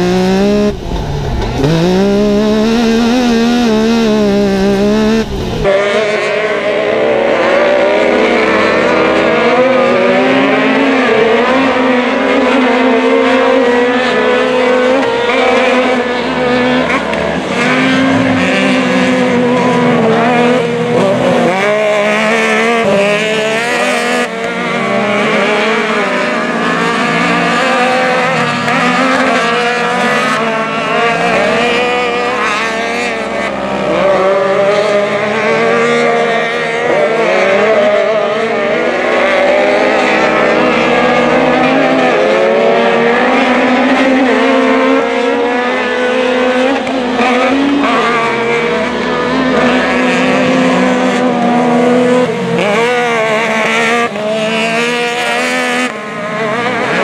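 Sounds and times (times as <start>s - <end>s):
off-road vehicle engines revving: 0.0s - 57.0s.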